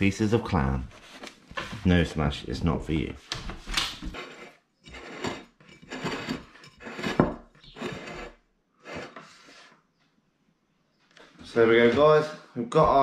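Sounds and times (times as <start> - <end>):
ceramic plate sliding on wood: 4.0 - 9.9.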